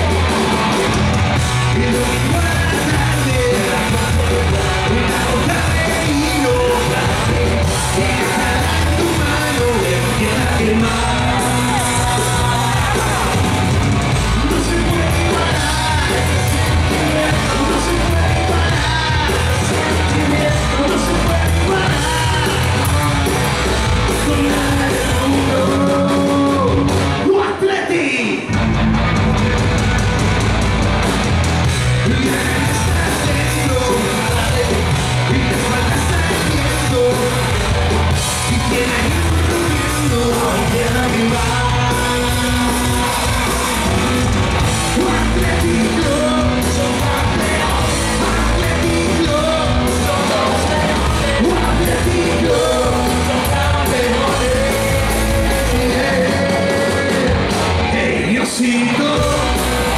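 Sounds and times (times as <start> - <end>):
punk rock band playing live: 0.0 - 59.9.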